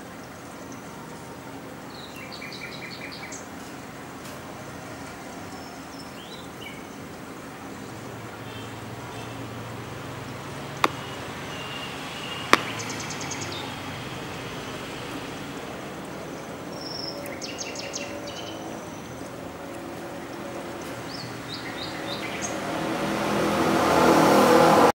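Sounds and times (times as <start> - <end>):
small birds chirping: 7.9 - 14.4, 16.0 - 22.6
vehicle approaching: 20.0 - 24.9.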